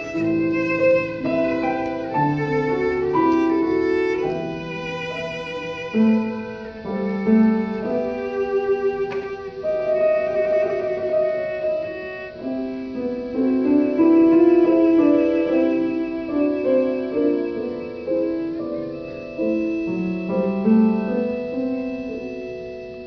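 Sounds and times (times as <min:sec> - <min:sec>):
cello playing bowed melody: 0:00.0 - 0:23.0
piano accompaniment: 0:00.0 - 0:23.0.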